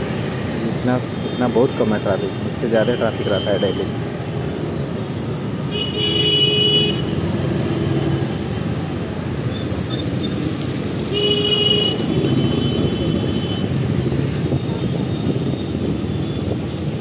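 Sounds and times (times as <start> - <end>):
motorbike and scooter traffic rumble: 0.0 - 17.0
vehicle horn honking: 5.7 - 7.2, 11.0 - 13.7.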